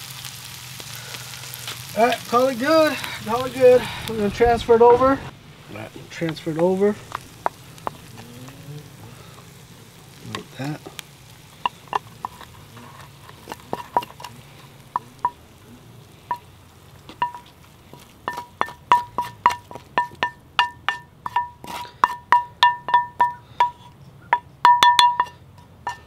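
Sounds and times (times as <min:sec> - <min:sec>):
spatula scraping frying pan: 0:06.1 - 0:26.0
spatula knocking on pan: 0:11.6 - 0:12.5, 0:17.1 - 0:17.5, 0:18.2 - 0:26.0.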